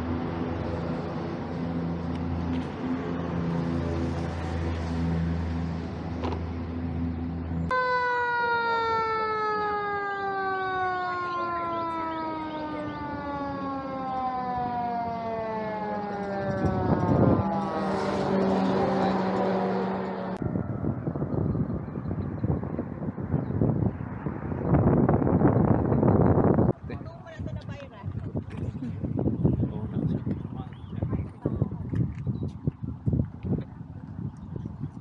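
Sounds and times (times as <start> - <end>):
low engine hum: 0.0 - 7.7, 9.5 - 35.0
street traffic noise: 0.0 - 35.0
siren sliding down in pitch: 7.7 - 22.1.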